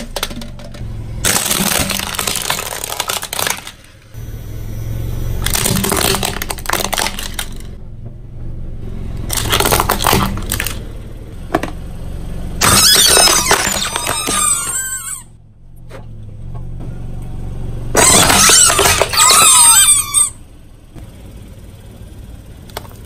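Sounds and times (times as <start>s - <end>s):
plastic toys cracking under tyre: 0.0s - 4.2s, 5.4s - 7.8s, 9.3s - 10.9s, 12.6s - 15.2s, 18.0s - 20.4s, 22.6s - 23.0s
low rumble of car: 0.0s - 23.0s.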